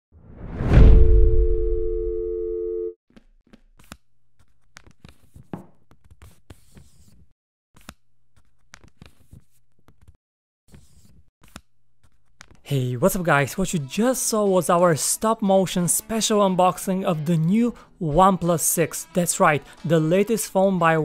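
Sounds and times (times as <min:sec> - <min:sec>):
low hum: 0:00.3 - 0:02.9
two-note electronic tone: 0:01.2 - 0:03.0.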